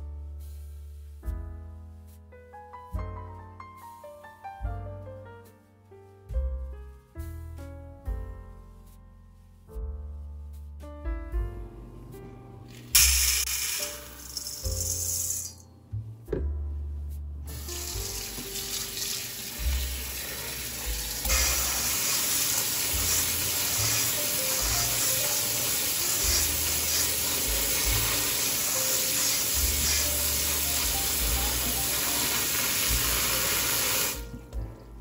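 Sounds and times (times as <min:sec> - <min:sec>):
tap water running into colander: 0:17.5 - 0:34.6.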